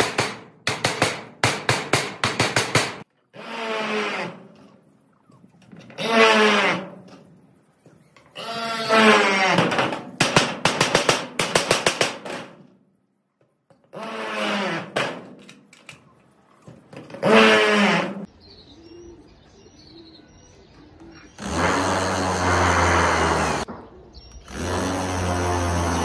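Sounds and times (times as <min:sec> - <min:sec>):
faint bird chirps: 0:04.7 - 0:05.7.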